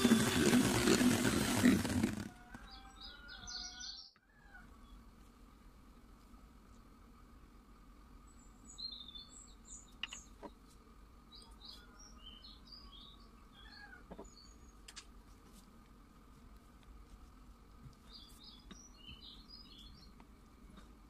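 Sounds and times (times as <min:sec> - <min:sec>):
small birds chirping: 0:00.0 - 0:05.1, 0:08.2 - 0:14.9, 0:17.7 - 0:20.9
low steady hum: 0:04.2 - 0:21.0.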